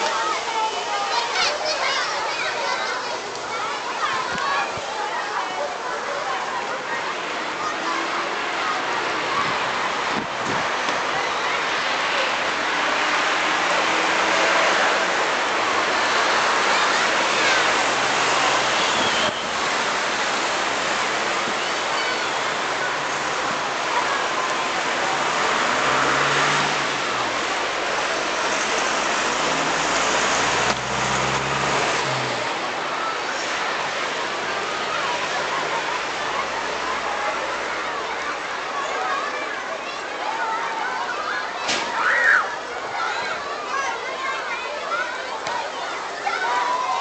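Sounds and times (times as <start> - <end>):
road traffic noise: 0.0 - 47.0
vehicle engine hum: 25.0 - 33.0.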